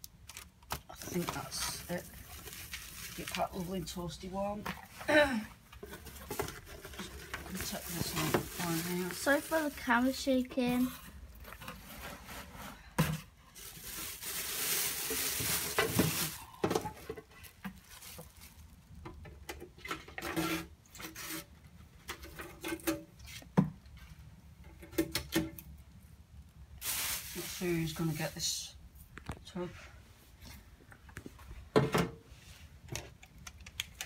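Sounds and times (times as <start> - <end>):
plastic bag and paper rustling: 0.2 - 5.1, 5.8 - 19.0, 26.8 - 28.7.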